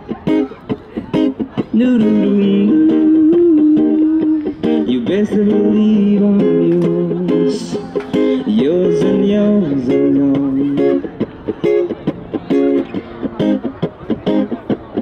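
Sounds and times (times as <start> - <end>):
acoustic guitar strumming: 0.0 - 15.0
man singing: 1.5 - 11.2.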